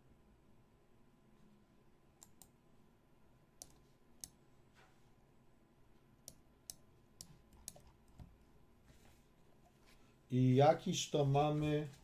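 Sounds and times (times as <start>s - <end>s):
computer mouse clicks: 2.2s - 2.6s, 3.6s - 4.4s, 6.2s - 8.3s.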